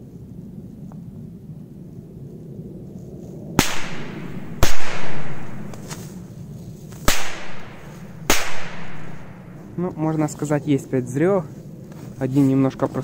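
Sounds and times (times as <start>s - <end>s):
firecracker bangs: 3.6s - 5.9s, 7.0s - 9.4s.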